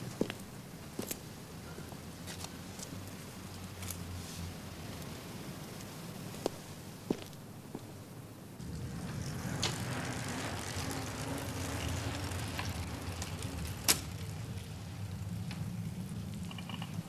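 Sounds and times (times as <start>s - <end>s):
road noise rumble: 0.0s - 17.0s
car engine running low: 8.6s - 17.0s.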